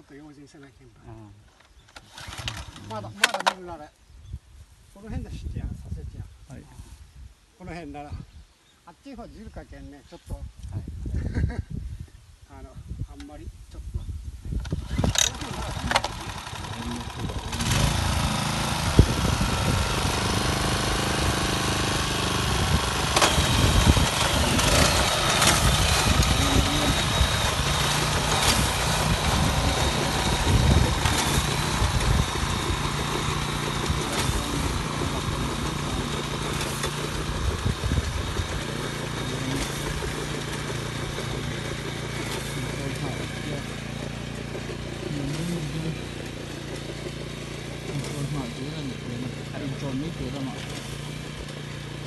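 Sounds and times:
small engine running: 1.7s - 3.6s, 14.6s - 52.0s
sharp mechanical clacks: 23.0s - 29.2s.

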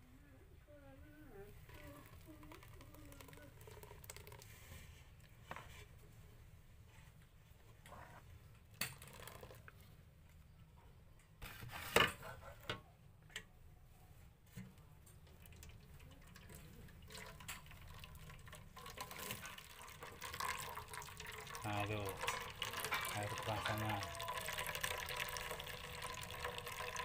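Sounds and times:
juice trickling into a pot: 1.6s - 5.3s, 8.7s - 9.9s, 15.0s - 27.0s.

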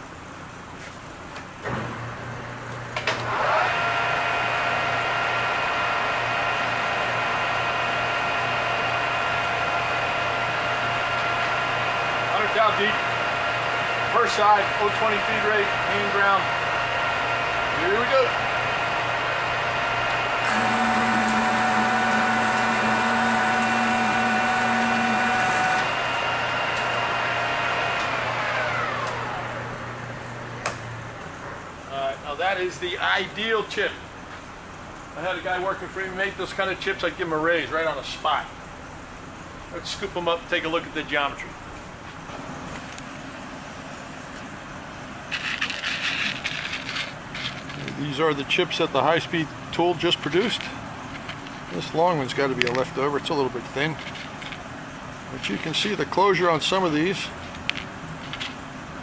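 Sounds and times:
lathe spindle whine: 3.2s - 30.4s
lathe motor hum: 3.2s - 31.2s.

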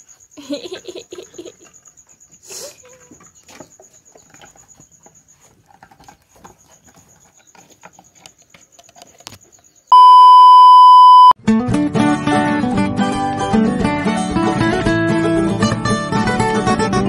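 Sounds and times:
kittens scuffling: 1.3s - 9.5s
test-tone beep: 9.9s - 11.4s.

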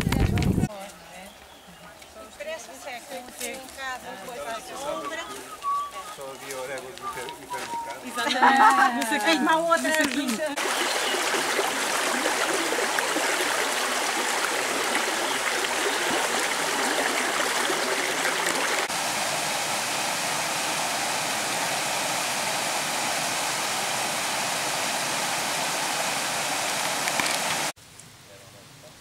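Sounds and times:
river rushing over rocks: 10.6s - 27.7s.

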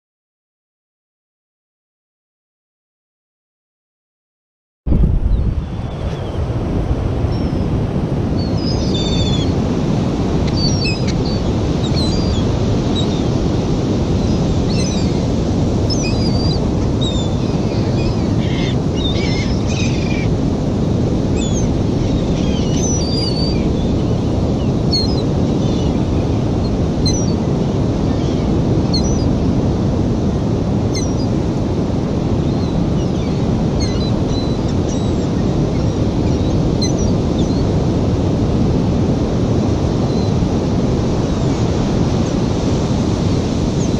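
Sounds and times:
surf: 4.9s - 43.9s
wind: 4.9s - 43.9s
gulls calling: 5.1s - 20.5s, 21.2s - 31.4s, 32.4s - 37.8s.

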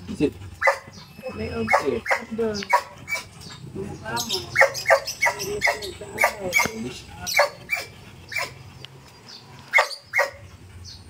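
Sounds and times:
dog barking: 0.6s - 0.9s, 1.6s - 3.3s, 4.6s - 8.6s, 9.7s - 10.4s.

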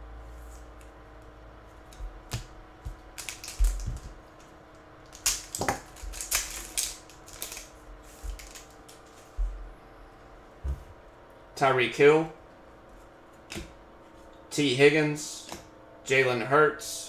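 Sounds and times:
foil pack crinkling and tearing: 3.2s - 4.1s, 5.0s - 9.1s.

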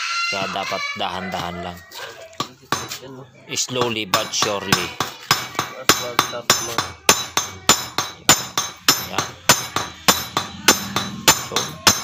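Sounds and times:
small hammer tapping metal: 3.8s - 12.0s.

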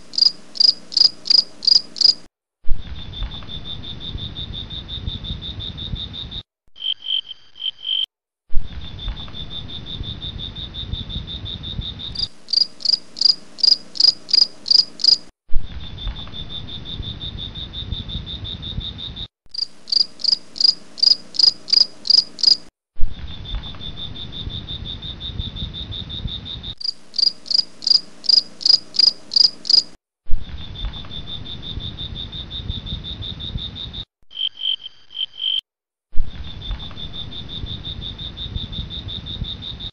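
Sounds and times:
crickets chirping: 0.0s - 2.3s, 9.0s - 15.3s, 16.3s - 22.7s, 23.5s - 30.0s, 30.8s - 35.6s, 36.6s - 39.9s.

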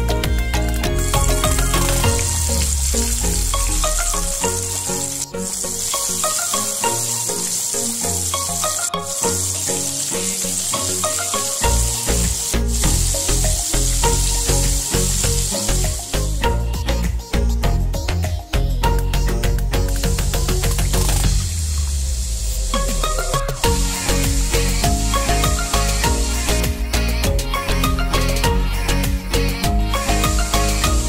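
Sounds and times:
background music: 0.0s - 31.0s
chicken deep-frying in oil: 1.0s - 16.4s.

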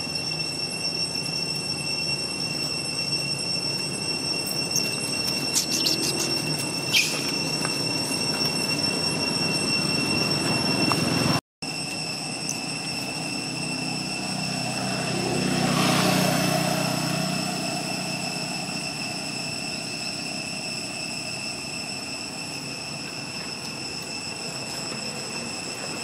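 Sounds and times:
high-pitched whine: 0.0s - 26.0s
engine passing by: 13.7s - 20.2s.

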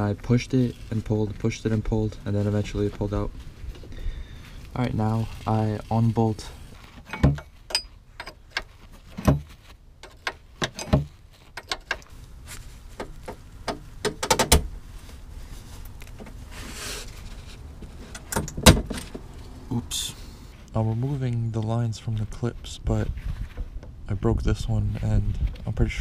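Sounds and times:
wrench clicking and clanking: 7.1s - 8.7s.

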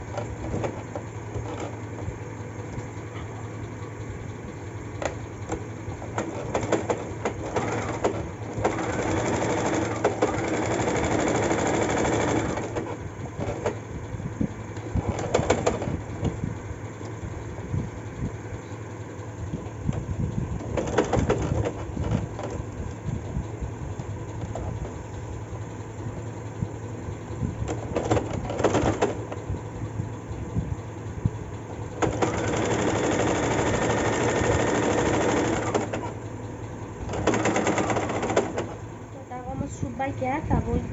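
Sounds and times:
sewing machine stitching: 5.0s - 13.8s, 14.8s - 16.3s, 20.6s - 22.6s, 27.7s - 29.4s, 31.9s - 36.2s, 37.0s - 38.8s.

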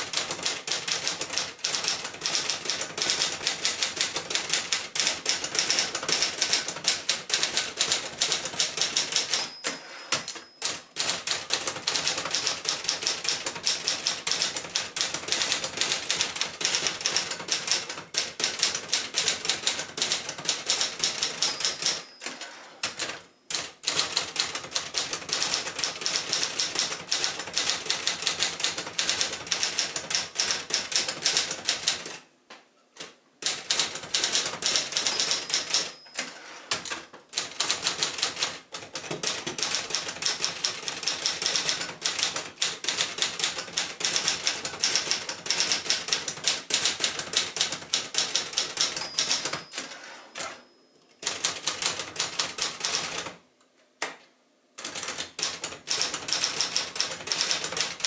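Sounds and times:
typewriter keys clattering: 0.0s - 32.2s, 33.4s - 50.0s, 51.2s - 53.4s, 54.8s - 58.0s
typewriter margin bell ringing: 0.6s - 28.5s, 33.7s - 36.8s, 47.1s - 53.2s.

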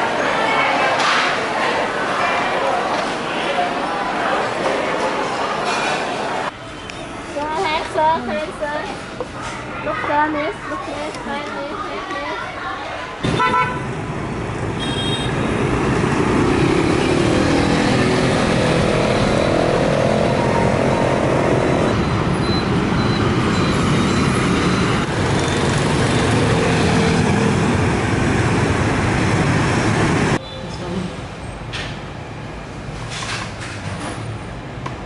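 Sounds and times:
motorbikes and cars in traffic: 6.4s - 35.0s
engine revving: 15.5s - 22.0s.

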